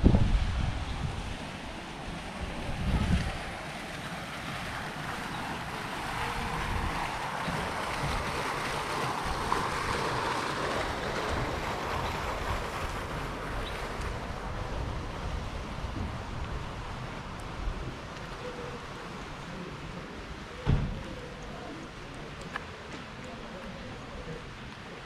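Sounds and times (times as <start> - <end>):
wind buffeting microphone: 0.0 - 18.3
fountain water splashing: 0.0 - 25.0.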